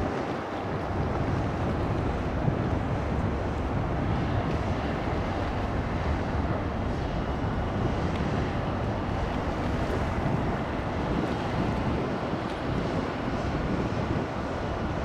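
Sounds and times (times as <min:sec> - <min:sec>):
water: 0:00.0 - 0:15.0
wind buffeting microphone: 0:00.0 - 0:15.0.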